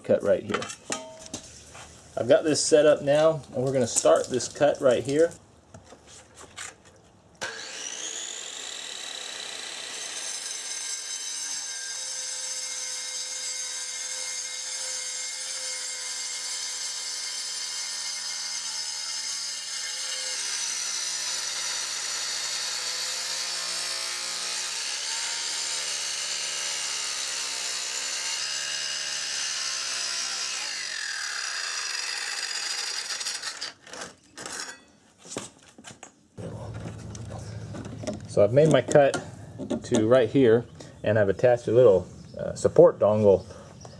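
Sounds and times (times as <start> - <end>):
circular saw cutting stone: 7.4 - 34.8.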